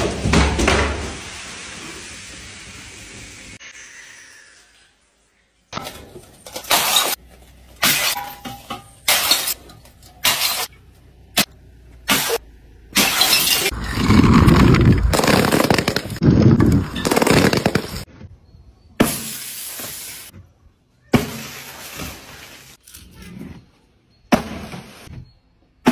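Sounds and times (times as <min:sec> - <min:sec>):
glass bottles smashing: 0:05.8 - 0:07.2, 0:07.8 - 0:10.7, 0:13.0 - 0:13.7.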